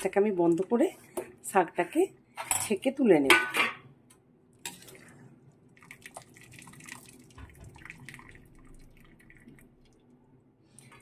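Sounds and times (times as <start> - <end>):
water dripping and splashing: 5.8 - 10.1.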